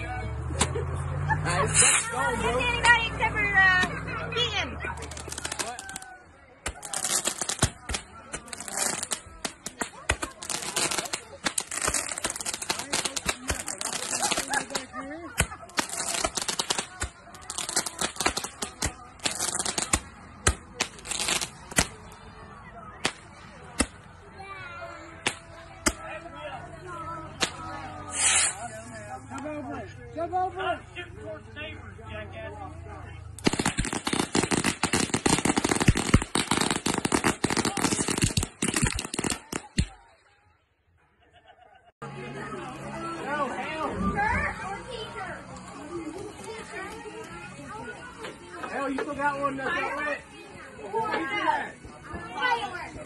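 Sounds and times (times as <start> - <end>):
firework fizzing and crackling: 1.6 - 3.0, 4.8 - 22.2, 23.0 - 24.0, 27.4 - 29.2, 33.4 - 40.1, 44.8 - 48.2
firework pops: 6.6 - 22.0, 27.4 - 28.6, 33.4 - 40.0.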